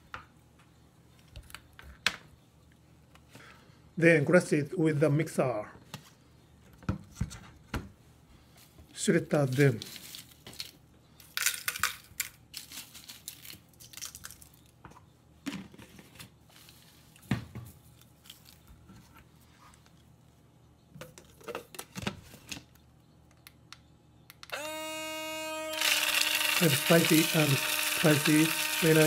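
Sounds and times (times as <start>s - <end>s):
dried chili peppers rattling: 9.4s - 14.7s
blender motor humming: 24.5s - 29.0s.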